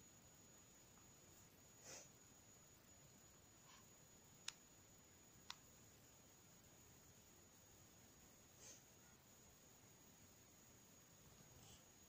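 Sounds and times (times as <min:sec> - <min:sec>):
faint high-pitched hiss: 0:00.0 - 0:12.0.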